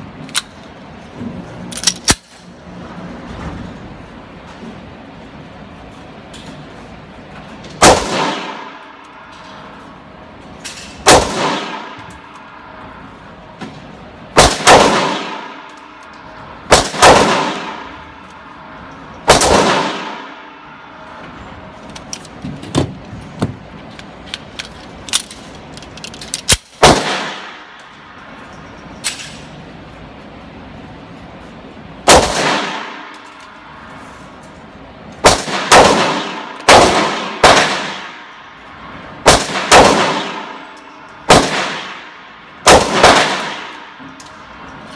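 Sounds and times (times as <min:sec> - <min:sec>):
pistol shots echoing indoors: 0:07.8 - 0:10.0, 0:10.9 - 0:12.9, 0:14.3 - 0:21.2, 0:26.5 - 0:27.9, 0:32.0 - 0:33.8, 0:35.2 - 0:44.5.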